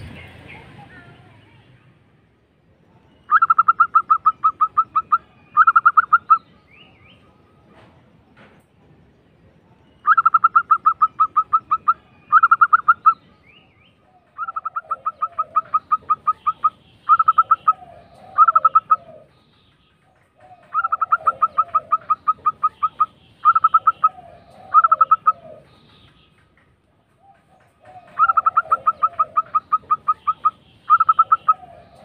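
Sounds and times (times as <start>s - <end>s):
dove staccato cooing: 3.3s - 6.5s, 10.1s - 13.2s, 14.0s - 32.0s.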